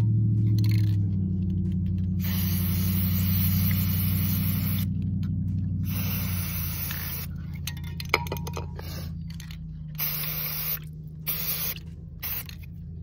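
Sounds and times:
steady low hum: 0:00.0 - 0:13.0
spray can hissing: 0:02.2 - 0:04.9, 0:05.8 - 0:07.4, 0:10.0 - 0:12.6.

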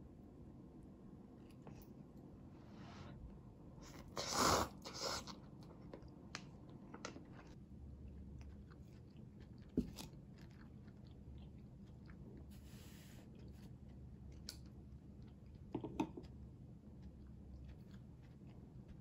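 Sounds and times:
chewing clicks: 0:13.4 - 0:19.0.

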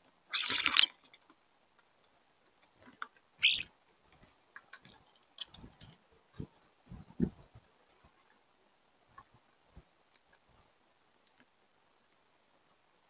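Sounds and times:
pecking and claws on feeder: 0:00.0 - 0:12.8
starlings harsh calls: 0:00.3 - 0:00.9, 0:03.4 - 0:03.7.

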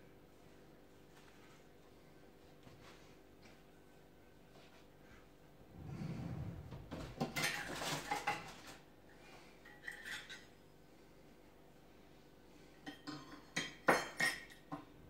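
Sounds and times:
dull rumble: 0:05.6 - 0:07.4
dishes and utensils clattering: 0:07.0 - 0:08.8, 0:09.6 - 0:10.6, 0:12.8 - 0:15.0.

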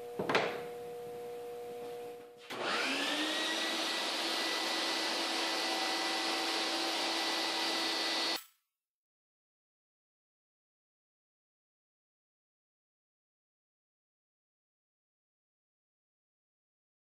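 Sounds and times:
table saw motor whining: 0:02.5 - 0:08.4.

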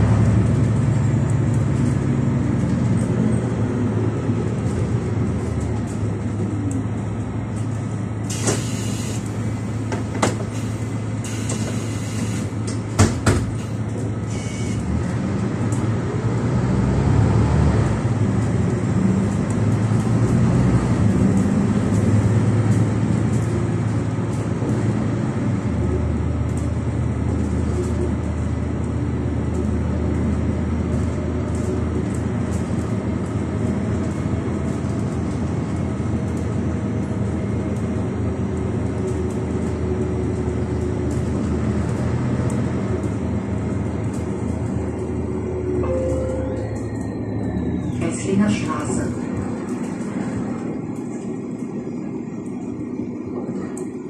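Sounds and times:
bus engine drone: 0:00.0 - 0:54.0
road noise: 0:00.0 - 0:54.0.

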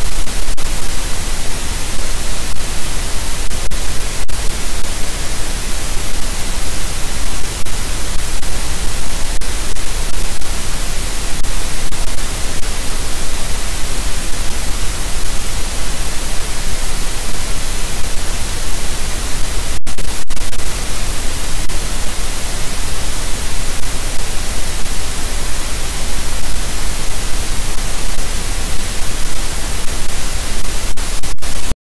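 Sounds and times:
loud static hiss: 0:00.0 - 0:31.8.

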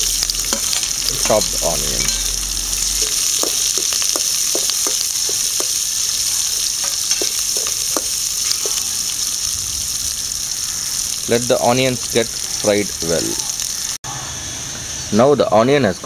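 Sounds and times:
spatula scraping pan: 0:00.0 - 0:09.3
onions sizzling in oil: 0:00.0 - 0:14.0.

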